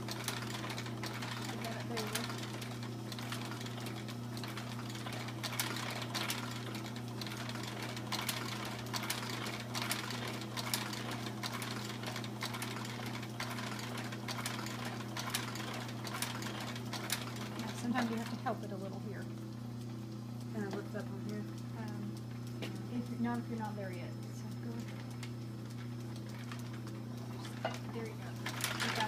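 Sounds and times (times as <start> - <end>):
sewing machine motor hum: 0.0 - 29.0
needle mechanism clicking: 0.1 - 18.4, 24.8 - 29.0.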